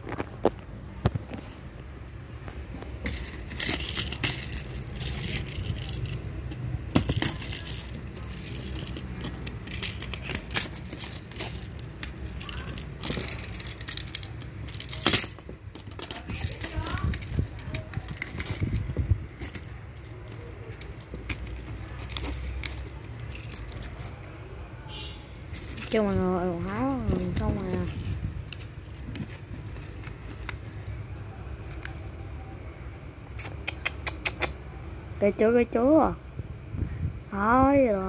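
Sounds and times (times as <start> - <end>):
plastic parts clicking and rattling: 2.7 - 24.4, 25.5 - 31.0.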